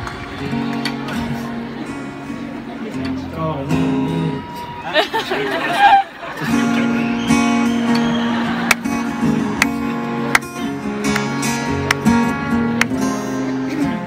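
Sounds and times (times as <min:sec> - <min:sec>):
acoustic guitar strumming: 0:00.0 - 0:04.8, 0:06.4 - 0:14.0
sharp percussive guitar hits: 0:09.6 - 0:13.2.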